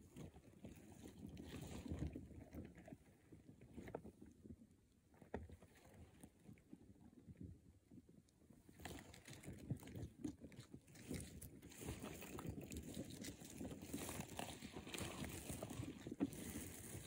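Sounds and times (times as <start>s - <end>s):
claws scraping on stony soil: 13.2s - 17.0s.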